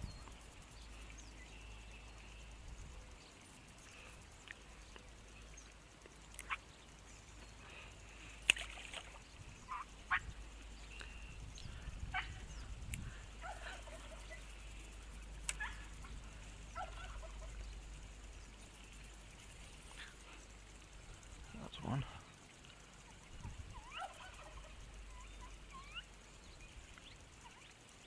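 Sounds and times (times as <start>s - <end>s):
high animal calls: 23.1s - 26.1s.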